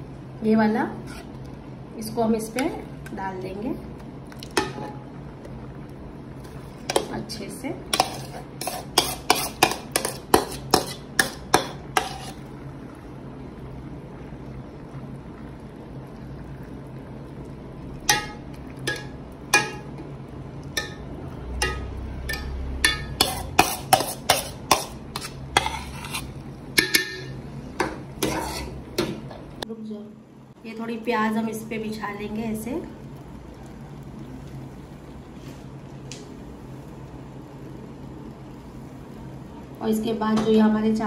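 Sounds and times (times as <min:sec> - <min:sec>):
spoon scraping cooking pot: 0:00.9 - 0:01.4, 0:07.9 - 0:12.5, 0:21.6 - 0:29.1.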